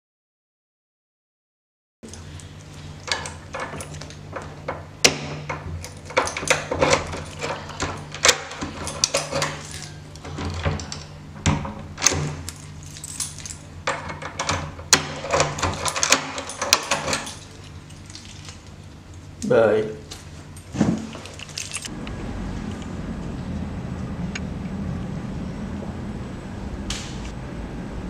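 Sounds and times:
steady low hum: 0:02.0 - 0:28.0
handling clicks and rattles: 0:02.1 - 0:19.2, 0:20.6 - 0:21.9.

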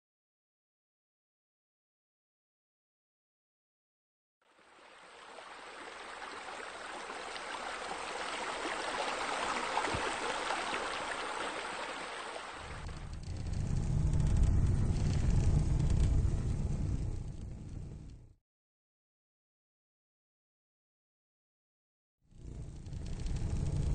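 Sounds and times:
water splashing into a pool: 0:04.5 - 0:13.0
fire pit flames rumbling: 0:12.6 - 0:18.2.

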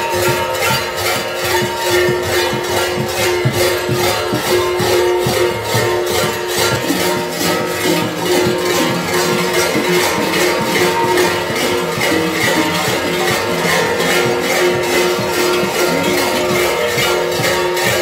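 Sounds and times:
large bells clanging: 0:00.0 - 0:18.0.

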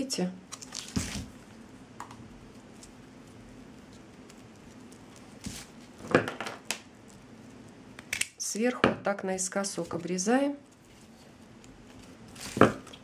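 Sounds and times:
faint steady hum: 0:00.0 - 0:13.0
hands handling twine: 0:02.4 - 0:08.3.

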